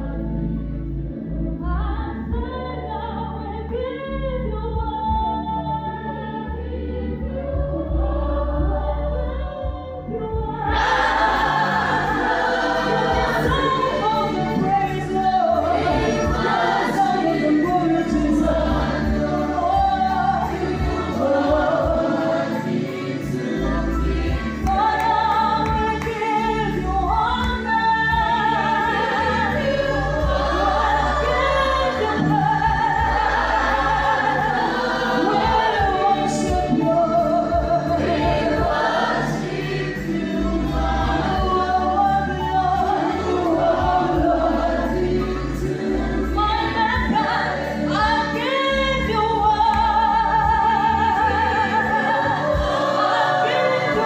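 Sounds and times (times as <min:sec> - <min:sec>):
gospel choir singing: 0:00.0 - 0:54.0
woman singing into a microphone: 0:01.3 - 0:10.8, 0:13.4 - 0:22.0, 0:24.6 - 0:30.3, 0:35.2 - 0:38.7, 0:41.3 - 0:44.4, 0:46.3 - 0:54.0
violins playing: 0:10.7 - 0:37.2.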